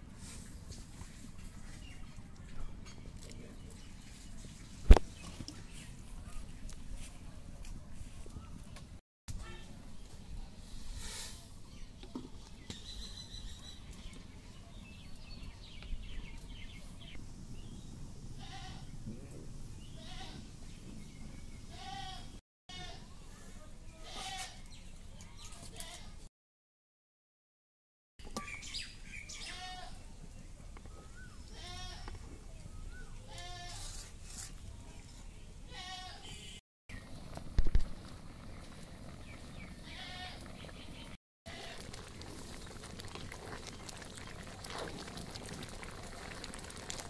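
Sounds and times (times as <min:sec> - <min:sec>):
birds chirping: 0:38.3 - 0:41.2
livestock bleating: 0:39.8 - 0:40.5.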